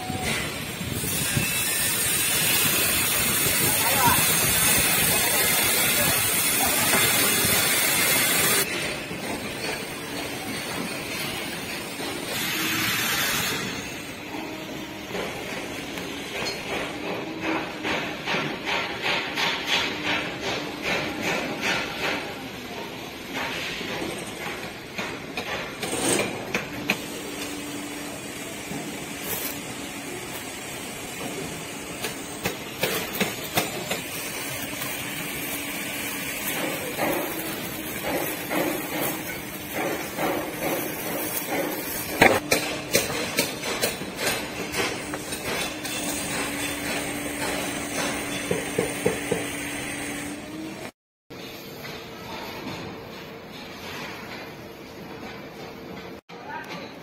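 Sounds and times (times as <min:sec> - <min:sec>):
hammering: 0:15.0 - 0:27.0, 0:31.1 - 0:50.4.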